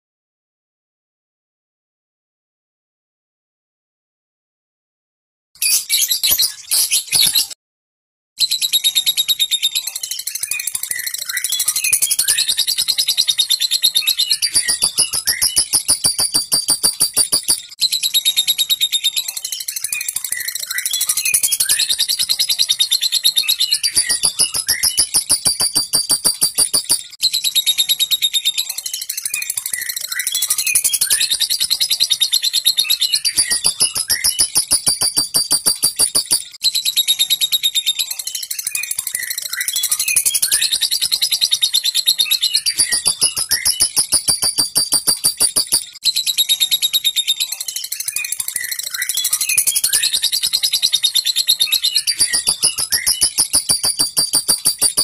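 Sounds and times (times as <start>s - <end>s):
soft bird chirps: 10.0s - 17.8s, 19.1s - 27.8s, 28.6s - 36.4s, 38.4s - 46.0s, 47.9s - 55.0s
bird chattering: 11.0s - 17.6s, 23.7s - 27.0s, 33.2s - 36.4s, 42.6s - 45.9s, 52.0s - 55.0s
lovebird harsh chatter: 23.8s - 27.0s, 33.3s - 36.4s.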